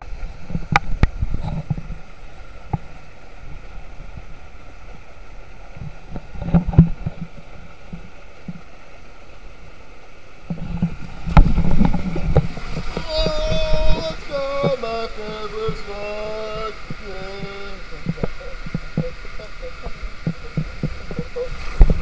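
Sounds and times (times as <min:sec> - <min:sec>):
water rushing through waterslides: 0:00.0 - 0:22.0.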